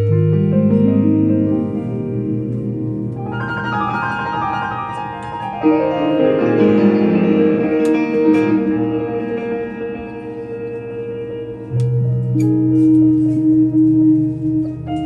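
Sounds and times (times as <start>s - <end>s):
jazz piano notes: 0.0s - 15.0s
sustained keyboard chords: 0.0s - 15.0s.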